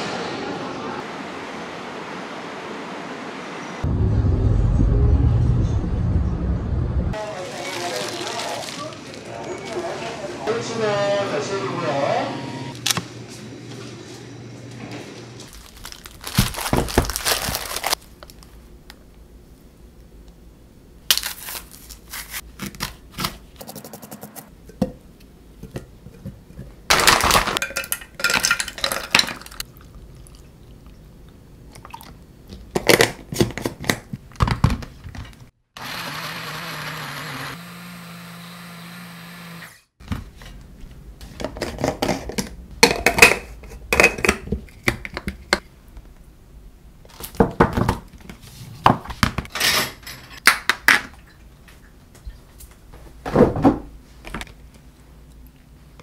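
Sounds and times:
blender running: 35.8s - 39.9s
kitchen clatter and knocks: 41.4s - 45.7s, 47.3s - 48.2s, 48.8s - 51.2s, 53.2s - 53.9s.

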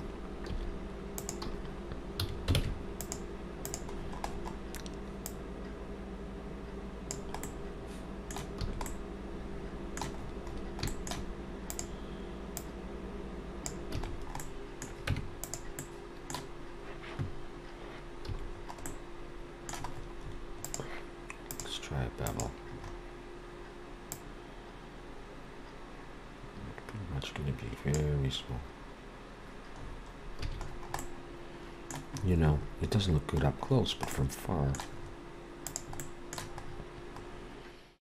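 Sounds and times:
steady low hum: 0.0s - 38.0s
keyboard and mouse clicking: 1.2s - 1.6s, 2.2s - 5.4s, 7.1s - 7.6s, 10.0s - 10.2s, 10.8s - 11.9s, 13.7s - 16.5s, 19.7s - 20.0s, 20.6s - 20.8s, 21.4s - 21.7s, 22.3s - 22.5s, 35.6s - 36.7s.

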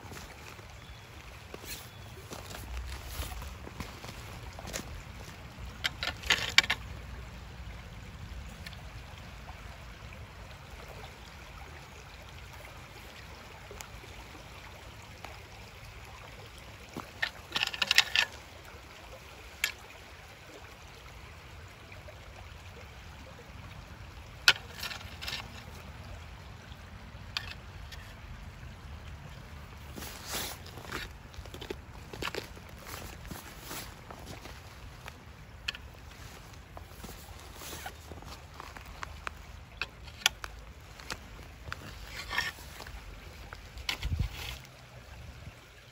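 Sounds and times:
stones clacking underfoot: 0.0s - 7.4s, 16.9s - 18.5s, 19.6s - 19.8s, 24.2s - 26.0s, 27.2s - 28.4s, 29.0s - 44.8s.

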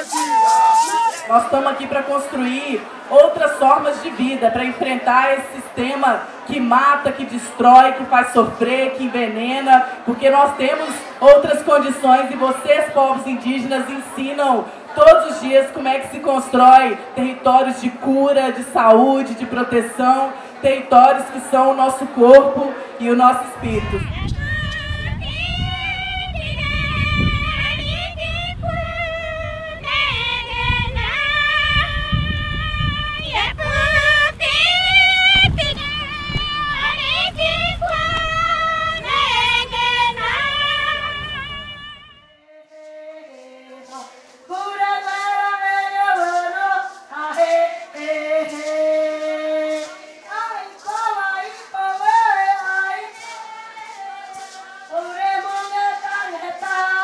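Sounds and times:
high-pitched voice singing: 24.0s - 44.1s.

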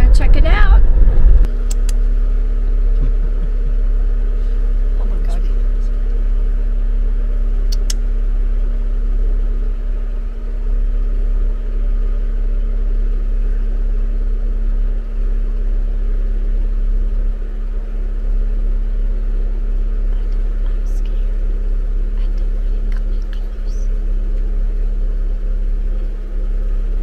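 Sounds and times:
car engine idling: 0.0s - 27.0s
sharp clicks: 1.7s - 2.0s, 7.7s - 8.0s.

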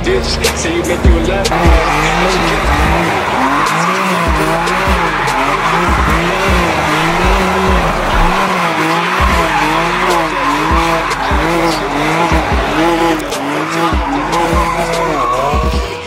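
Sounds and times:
car engine revving: 0.0s - 16.0s
tyres squealing: 0.0s - 16.0s
low bass thumps: 5.9s - 8.4s.

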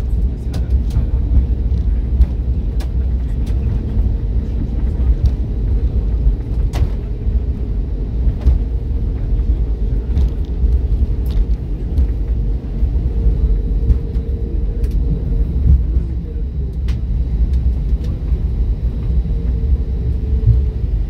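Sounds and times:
low rumble of wheels and engines: 0.0s - 21.0s.

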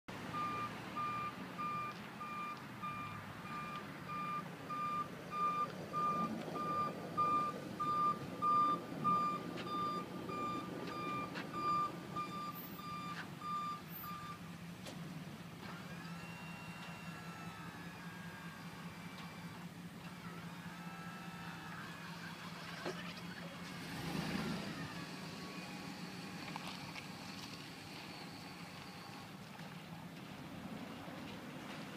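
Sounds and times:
truck engine running: 0.1s - 31.9s
backup alarm beeping: 0.3s - 14.4s.

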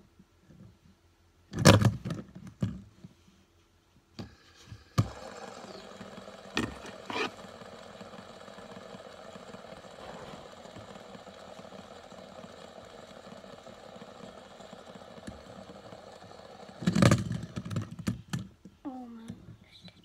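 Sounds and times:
fidget spinner whirring: 4.2s - 18.6s
fidget spinner clicks: 5.0s - 18.5s.

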